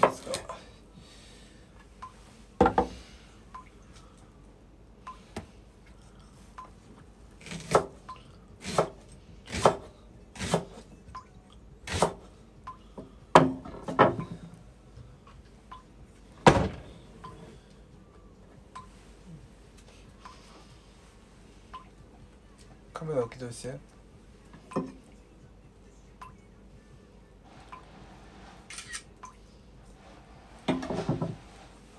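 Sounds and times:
knife chopping on wooden board: 7.4 - 8.0, 8.6 - 10.7, 11.9 - 12.2.

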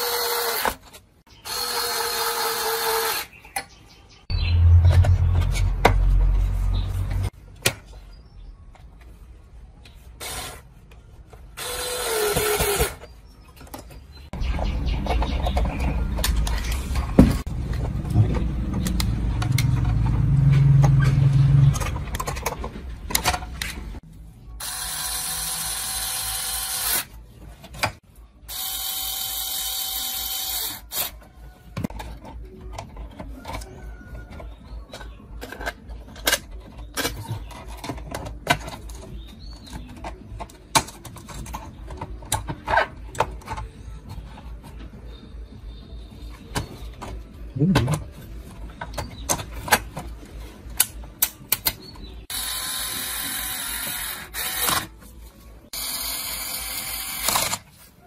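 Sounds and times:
low rumble with knocks: 4.3 - 7.3, 17.0 - 22.1.

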